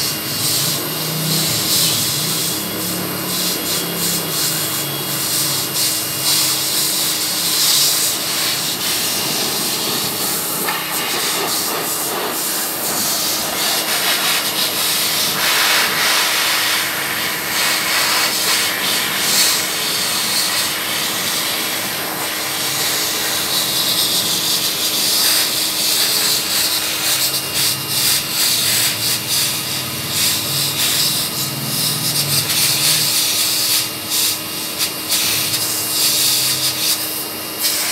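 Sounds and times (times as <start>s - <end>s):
blower dryer rushing air: 0.0s - 37.9s.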